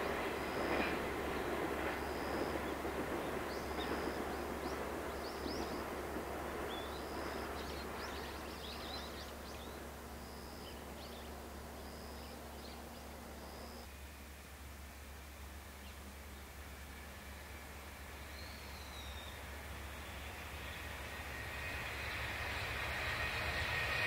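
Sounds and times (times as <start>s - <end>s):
birds chirping: 0.0s - 13.8s
train rumble: 0.0s - 24.0s.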